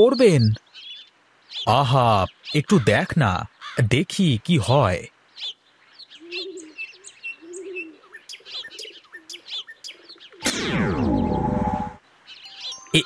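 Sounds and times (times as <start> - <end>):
birds chirping: 0.0 - 13.0
dove cooing: 6.2 - 11.1
cartoon magic sliding pitches: 10.4 - 12.0.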